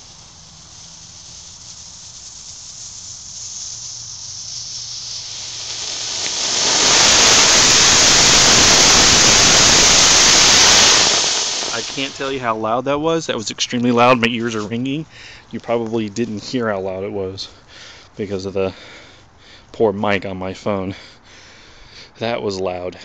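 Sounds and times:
rocket motor hissing: 0.0 - 12.5.

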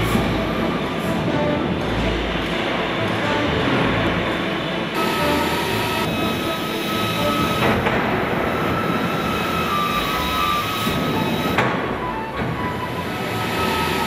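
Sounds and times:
stamping press machine noise: 0.0 - 14.0
steady machine whine: 0.0 - 14.0.

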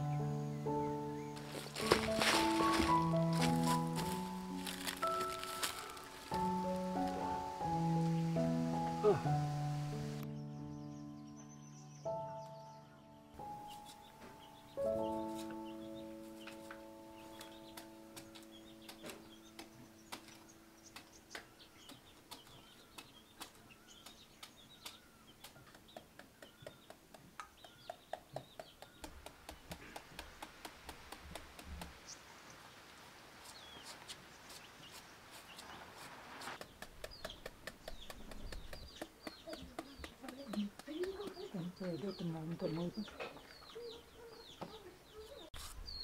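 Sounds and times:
music: 0.0 - 21.4
faint birdsong: 0.0 - 46.0
rustling: 1.4 - 8.2.

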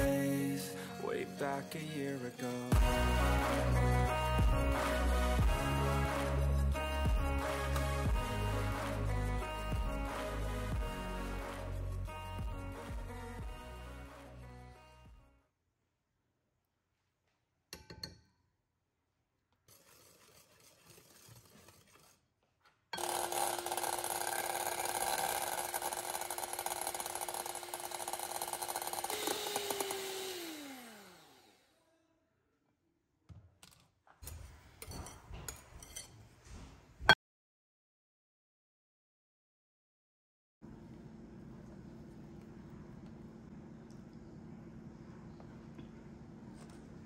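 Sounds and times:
scraping against bowl: 19.7 - 22.3
electric hand mixer whipping: 23.0 - 31.7.

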